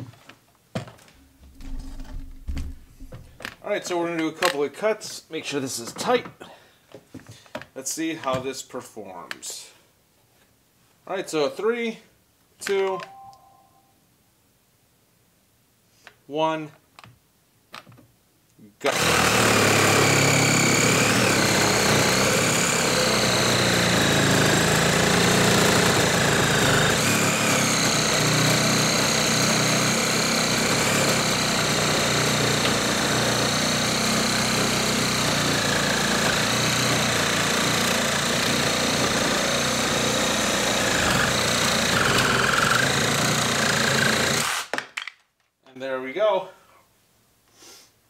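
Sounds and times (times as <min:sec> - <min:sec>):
reciprocating saw cutting wood: 0:18.9 - 0:44.7.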